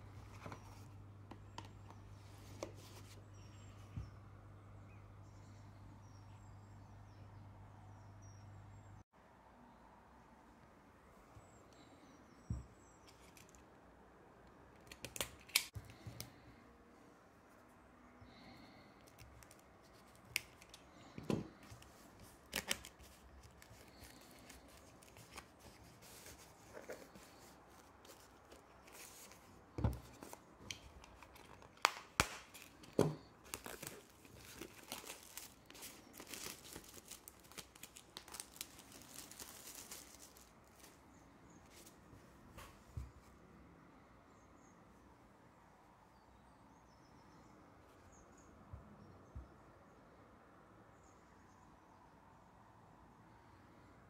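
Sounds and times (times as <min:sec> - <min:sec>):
plastic shrink wrap crinkling: 0:21.6 - 0:29.4, 0:30.1 - 0:41.0.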